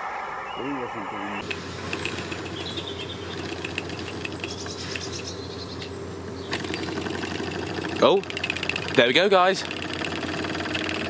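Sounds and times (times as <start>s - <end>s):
steady low hum: 0.0s - 11.0s
toy steam engine spitting and ticking: 6.6s - 11.0s.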